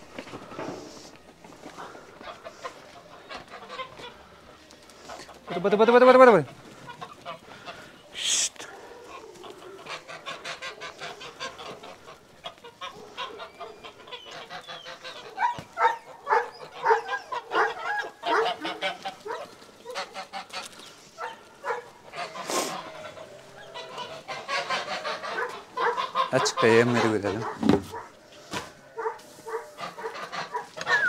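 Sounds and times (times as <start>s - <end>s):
geese honking: 0.5s - 31.0s
man hissing shh: 8.1s - 8.8s, 22.4s - 22.8s.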